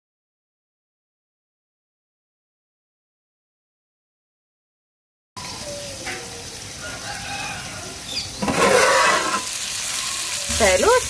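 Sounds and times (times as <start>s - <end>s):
faint bird calls: 5.4s - 8.4s, 9.8s - 11.0s
curry sizzling in a pot: 5.4s - 11.0s
pot lid coming off: 8.4s - 9.6s.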